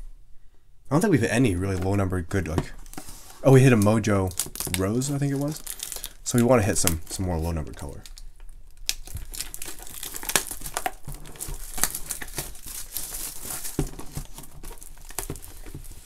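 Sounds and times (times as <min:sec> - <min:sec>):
plastic shrink wrap tearing: 0:03.4 - 0:16.0.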